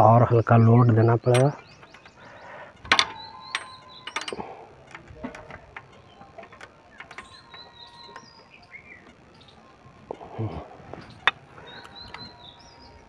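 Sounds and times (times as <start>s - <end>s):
spanner clicking on metal: 1.2s - 8.4s.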